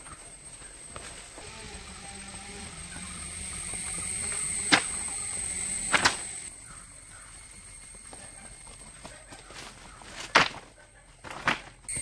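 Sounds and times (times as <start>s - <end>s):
high-pitched insect drone: 0.0s - 9.4s.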